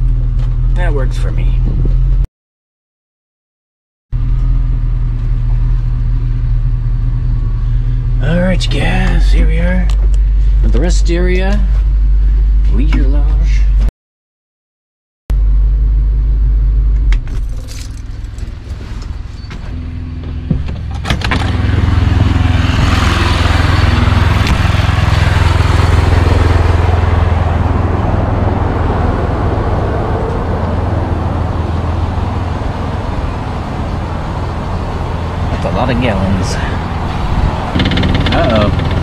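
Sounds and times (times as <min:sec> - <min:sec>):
engine idling: 0:04.2 - 0:13.7, 0:15.4 - 0:39.0
engine running with hiss: 0:29.5 - 0:39.0.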